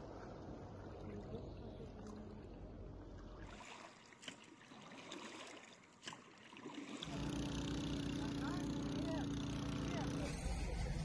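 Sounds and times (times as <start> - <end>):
water trickling and sloshing: 0.0 - 8.6
engine hum: 7.0 - 11.0.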